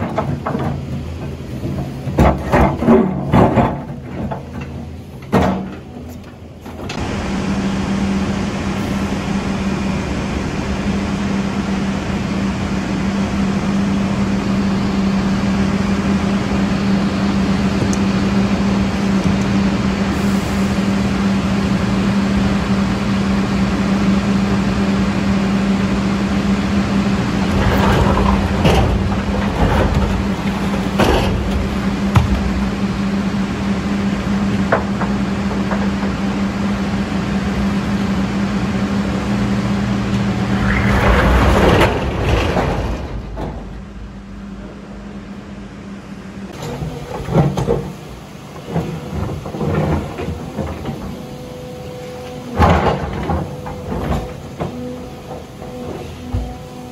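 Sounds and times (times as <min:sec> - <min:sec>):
knocks and scraping: 0:00.0 - 0:07.0, 0:27.3 - 0:33.3, 0:40.1 - 0:45.5
diesel construction machinery running: 0:00.0 - 0:56.9.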